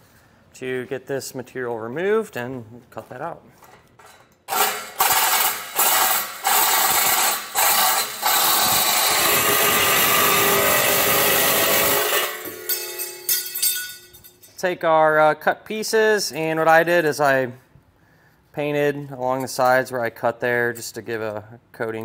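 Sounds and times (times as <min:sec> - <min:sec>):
reciprocating saw cutting metal: 0:04.5 - 0:13.6.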